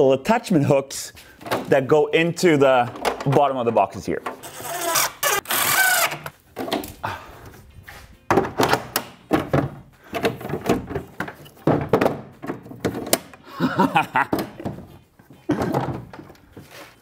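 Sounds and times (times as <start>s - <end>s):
cordless driver driving screw: 4.4s - 6.3s.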